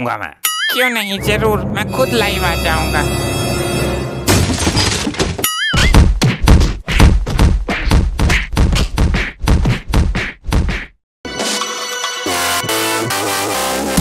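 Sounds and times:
cartoon wobbling whistle: 0:05.5 - 0:06.0
cartoon punches and thwacks: 0:05.6 - 0:11.0.

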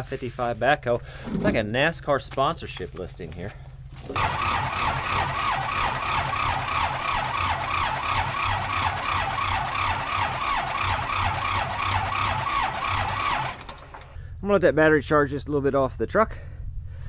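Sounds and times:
starter cranking diesel engine: 0:04.0 - 0:14.3.

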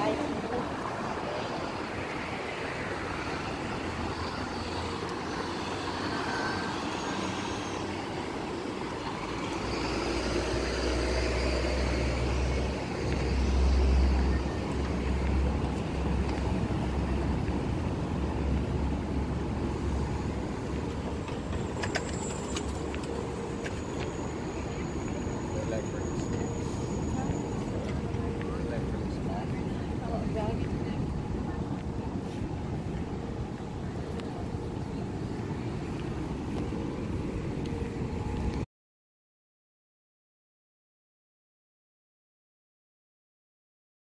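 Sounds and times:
road traffic passing: 0:00.0 - 0:38.7.

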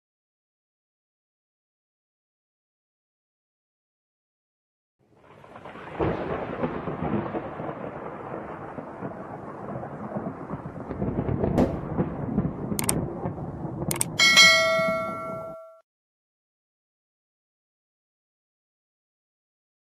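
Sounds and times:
thunder rumbling: 0:05.1 - 0:15.7
sharp clicks: 0:12.8 - 0:13.0, 0:13.9 - 0:14.2
bell-like chime: 0:14.2 - 0:15.8.

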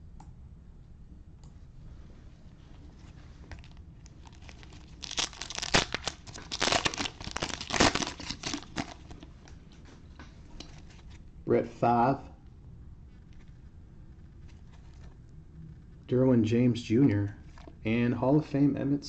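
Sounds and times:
plastic wrapper tearing and crinkling: 0:03.5 - 0:09.6.

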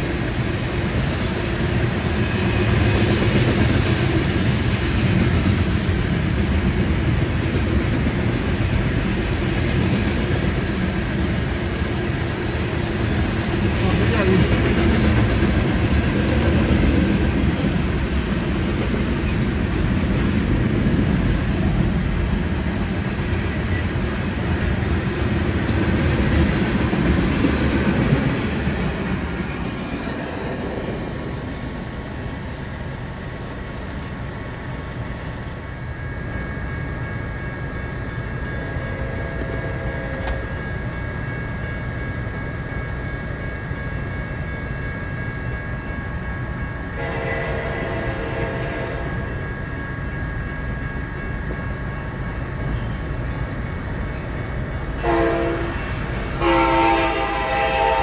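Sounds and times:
freight train rumbling on rails: 0:00.0 - 0:58.0
high ringing tone: 0:35.9 - 0:57.9.

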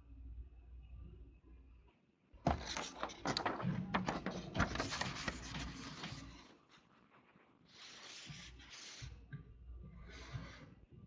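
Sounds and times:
paper rustling and crackling: 0:02.5 - 0:09.0.

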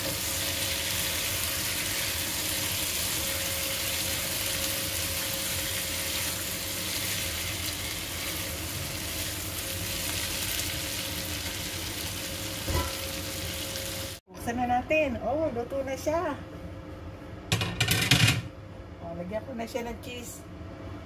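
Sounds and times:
food sizzling in oil: 0:00.0 - 0:14.2.

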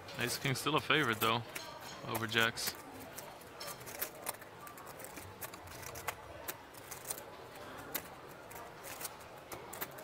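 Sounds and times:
poker chips clicking: 0:02.2 - 0:07.3.

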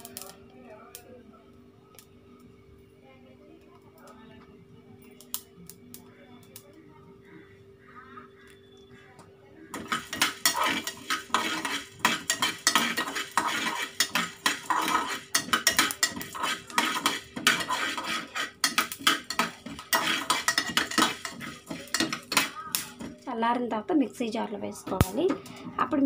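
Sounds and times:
spoon scraping steel pot: 0:09.7 - 0:23.2
seeds rattling on metal: 0:09.7 - 0:23.3.

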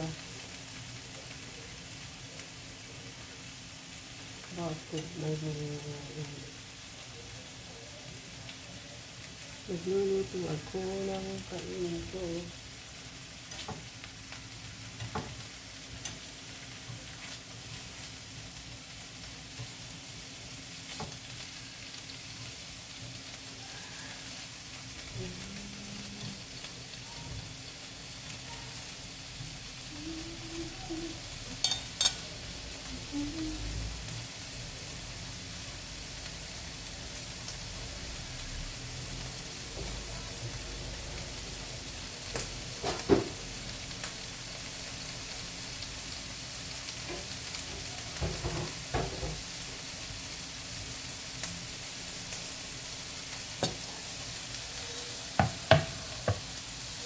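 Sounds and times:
meat sizzling in oil: 0:00.0 - 0:57.0
chopsticks clacking against pan: 0:31.6 - 0:32.2.

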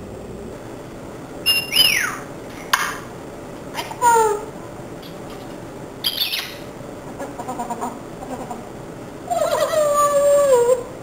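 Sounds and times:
parrot squawking and chattering: 0:01.4 - 0:02.3, 0:06.0 - 0:08.7.

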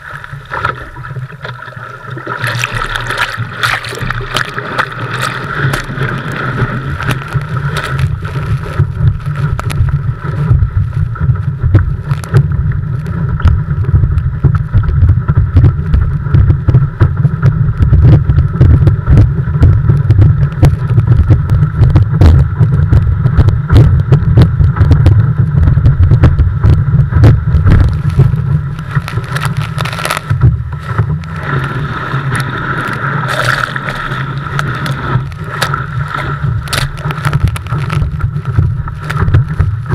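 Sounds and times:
water splashing against board: 0:00.0 - 0:15.0, 0:27.3 - 0:39.9.

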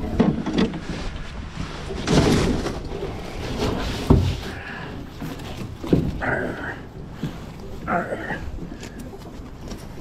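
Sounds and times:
knocks and thumps on boat floor: 0:04.0 - 0:04.6.

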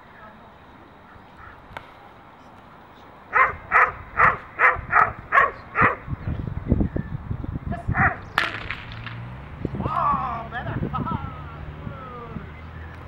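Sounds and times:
dog barking: 0:03.3 - 0:06.1, 0:07.9 - 0:08.2.

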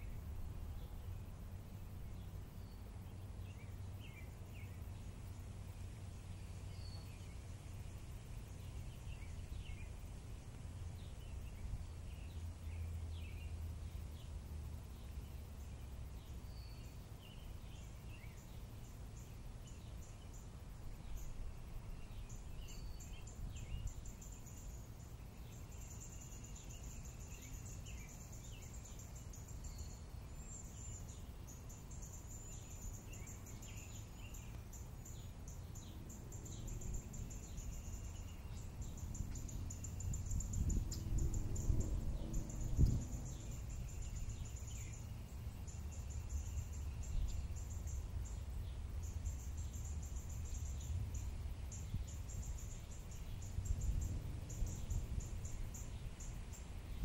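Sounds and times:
insect chirring: 0:00.0 - 0:57.0
wind on microphone: 0:39.0 - 0:44.5, 0:53.2 - 0:57.0.

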